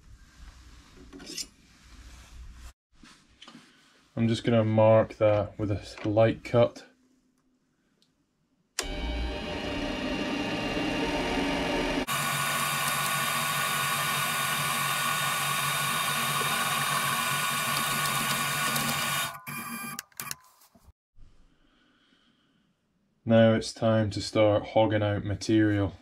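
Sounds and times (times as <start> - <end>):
lathe motor whining: 8.8 - 20.0.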